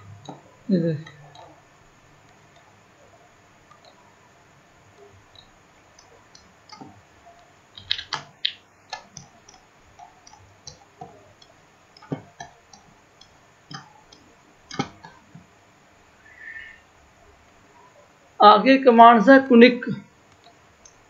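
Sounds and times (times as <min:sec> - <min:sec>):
mouse and keyboard clicks: 0:07.8 - 0:11.2.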